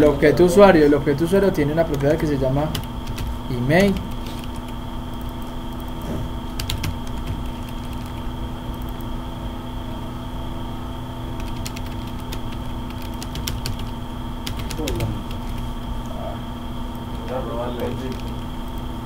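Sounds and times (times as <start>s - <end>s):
background hum: 0.0s - 19.0s
keyboard typing: 1.7s - 9.2s, 11.4s - 15.8s, 16.9s - 18.9s.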